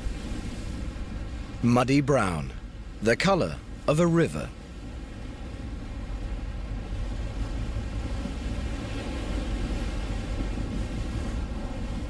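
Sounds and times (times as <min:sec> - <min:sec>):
boat engine rumble: 0:00.0 - 0:12.0
rushing water: 0:00.0 - 0:12.0.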